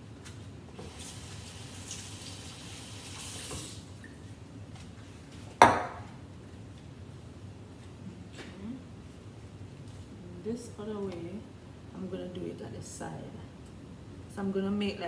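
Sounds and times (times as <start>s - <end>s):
kitchen tap running: 0.8s - 3.9s.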